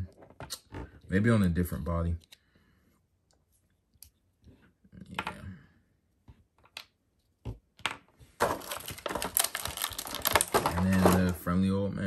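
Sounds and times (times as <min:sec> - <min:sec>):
plastic parts clicking: 0:07.8 - 0:11.4
plastic packaging crackling: 0:08.4 - 0:11.5.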